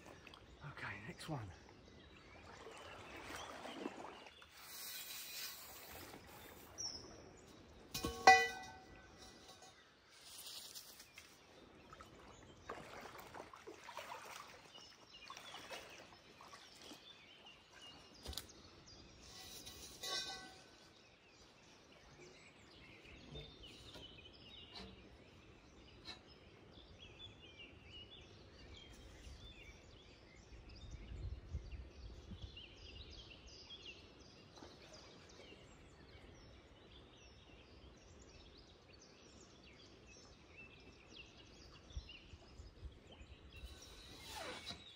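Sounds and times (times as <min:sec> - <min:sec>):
small birds chirping faintly: 0:00.0 - 0:44.9
water splashing from wading: 0:01.7 - 0:06.8, 0:11.8 - 0:18.2.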